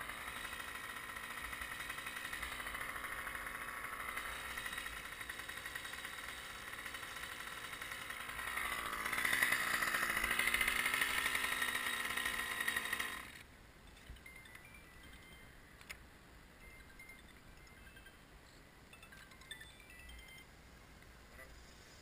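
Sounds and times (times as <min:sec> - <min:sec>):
engine running: 0:00.0 - 0:13.5.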